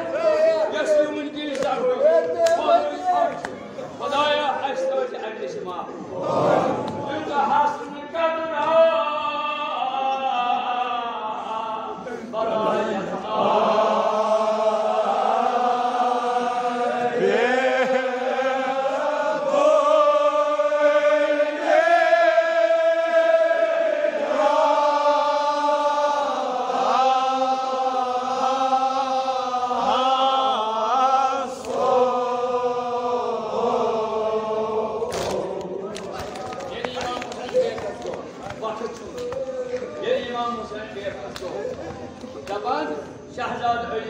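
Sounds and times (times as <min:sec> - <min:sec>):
man chanting: 0:07.0 - 0:13.3.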